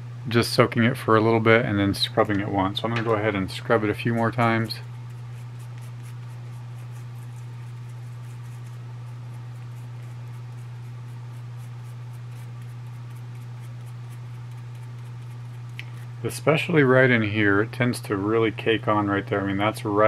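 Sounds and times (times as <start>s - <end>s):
steady low hum: 0.0s - 20.0s
toothbrush scrubbing metal: 3.6s - 15.8s.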